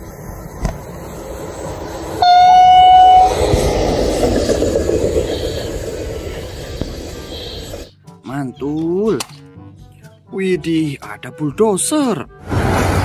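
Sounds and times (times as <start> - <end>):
train rumbling: 0.0 - 7.9, 12.4 - 13.0
train horn blast: 2.2 - 4.0.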